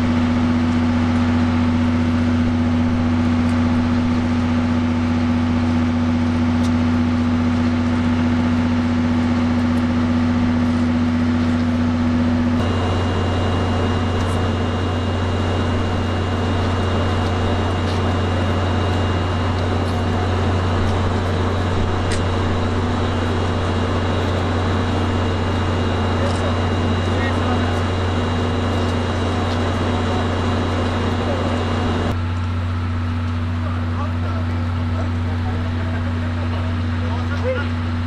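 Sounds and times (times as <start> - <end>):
noisy rush: 0.0 - 32.3
railway machinery hum: 0.0 - 38.0
thin high whines: 12.5 - 32.1.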